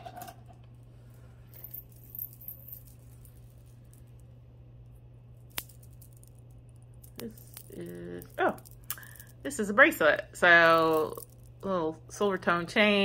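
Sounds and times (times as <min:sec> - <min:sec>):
low steady hum: 0:00.0 - 0:13.0
jewelry jingling: 0:01.4 - 0:04.1, 0:05.6 - 0:09.5, 0:10.6 - 0:11.6.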